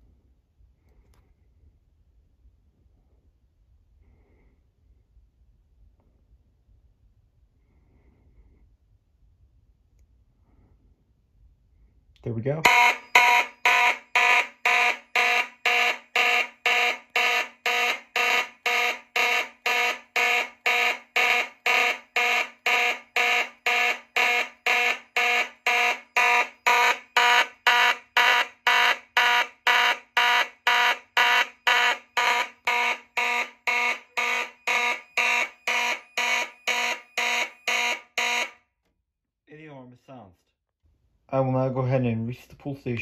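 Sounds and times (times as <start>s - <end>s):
fire alarm horn blasts: 12.6s - 38.6s.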